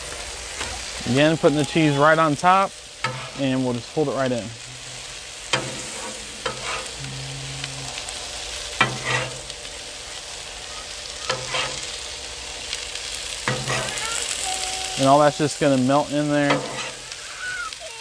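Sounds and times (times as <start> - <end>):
hash browns sizzling on griddle: 0.0 - 18.0
metal blades scraping griddle: 1.8 - 10.3, 11.0 - 17.5.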